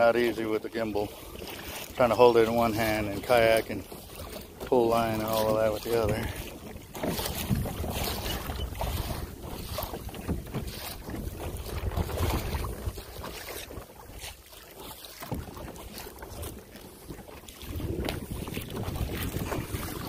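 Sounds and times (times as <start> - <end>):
water splashing around kayak: 0.0 - 20.0
wind buffeting microphone: 6.0 - 13.7, 17.1 - 20.0.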